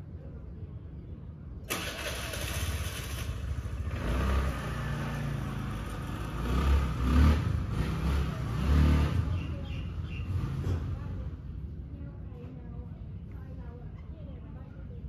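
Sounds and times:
vehicle engine running: 1.7 - 11.8.

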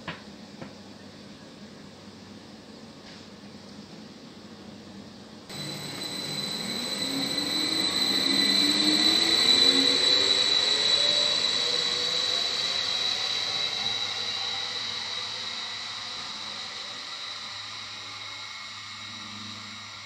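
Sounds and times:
train traction motor whine: 4.8 - 20.0
high electrical whine: 5.5 - 20.0.

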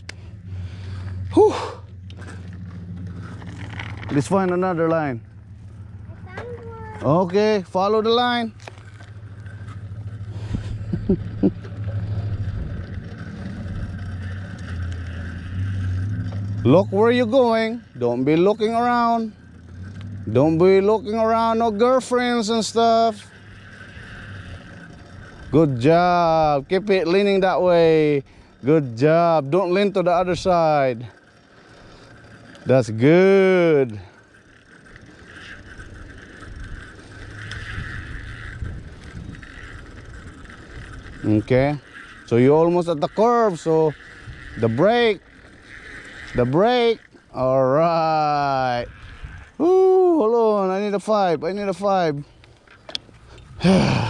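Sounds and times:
bicycle tyre noise on concrete: 0.0 - 54.0
wind rumble on microphone: 10.4 - 14.0, 36.0 - 41.6, 48.7 - 49.6.

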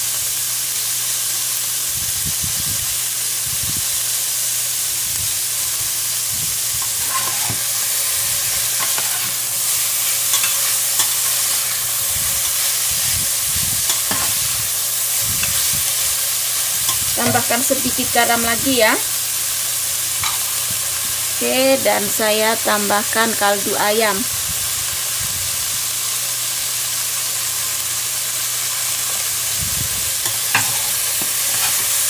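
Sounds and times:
food sizzling in a pan: 0.0 - 32.0
spatula scraping a pan: 6.8 - 17.7, 20.2 - 20.8, 30.2 - 32.0.

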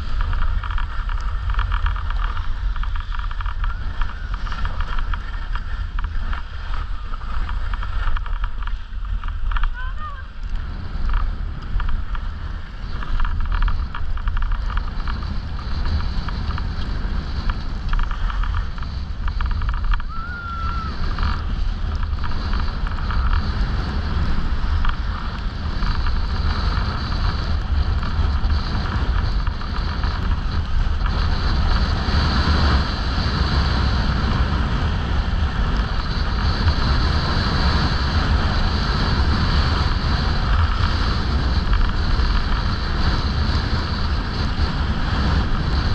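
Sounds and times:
skis sliding on snow: 0.0 - 45.9
wind rushing over microphone: 0.0 - 45.9.

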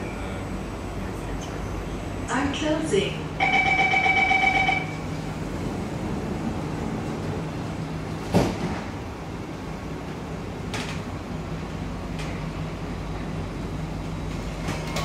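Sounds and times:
train door warning tone: 0.0 - 0.8, 2.4 - 5.4
train car hum: 0.0 - 15.0.

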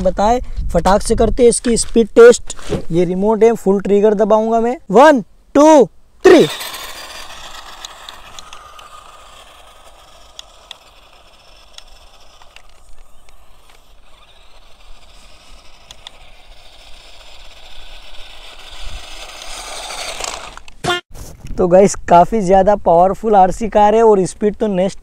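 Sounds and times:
rc car motor and tyres: 6.2 - 20.9
sharp clicks: 7.5 - 17.6.

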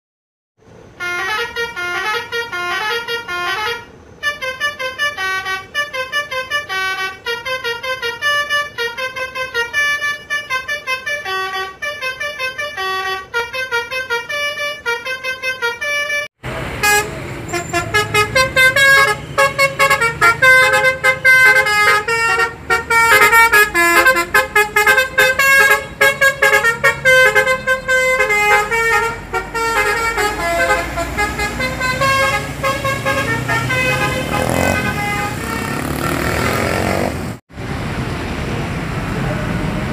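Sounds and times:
bus horn playing melody: 0.8 - 37.4.

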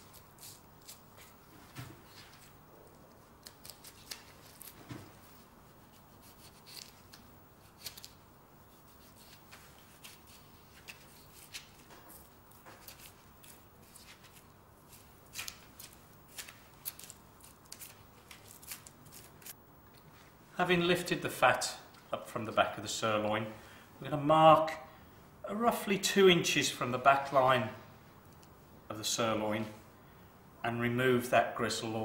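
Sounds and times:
knife scraping through fat: 0.0 - 1.3.

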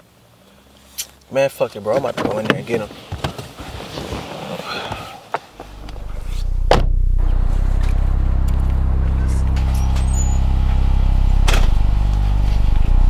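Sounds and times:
steady low hum: 5.6 - 13.0
car door slamming: 5.7 - 7.2, 11.4 - 12.2.

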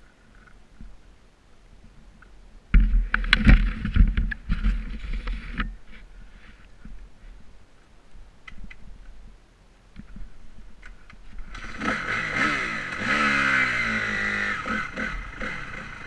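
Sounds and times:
dirt bike engine rumbling: 1.8 - 7.4, 10.0 - 16.0.

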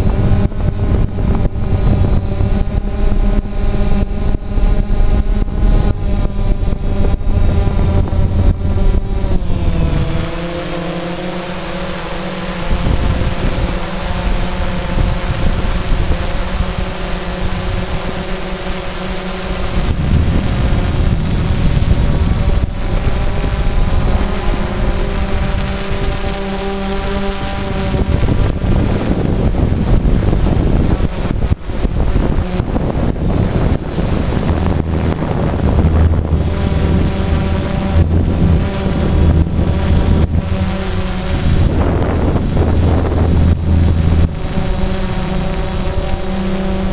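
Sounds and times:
low rumble: 0.0 - 11.4, 19.4 - 26.4, 31.5 - 46.9
drone propellers whirring: 0.0 - 46.9.

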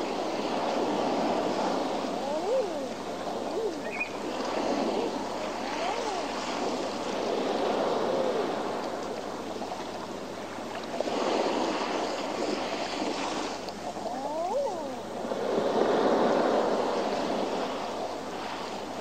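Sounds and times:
surf washing against rocks: 0.0 - 19.0
animal calls: 2.2 - 4.2.

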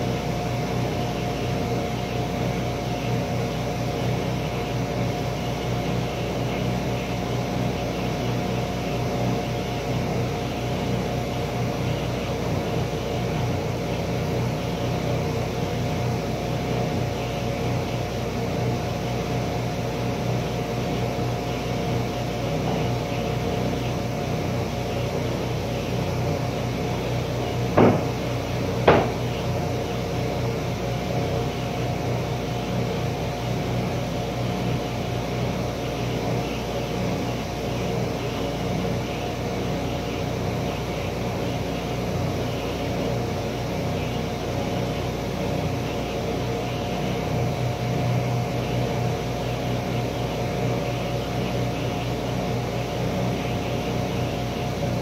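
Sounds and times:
panel saw motor humming: 0.0 - 55.0
sharp knocks: 27.7 - 28.2, 28.8 - 29.2.

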